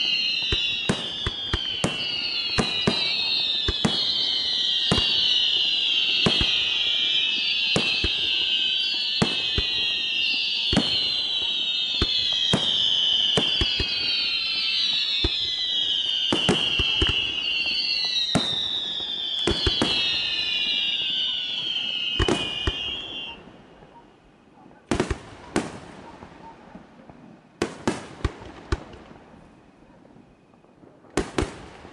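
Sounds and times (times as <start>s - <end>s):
firework whistles gliding down: 0.0s - 24.2s.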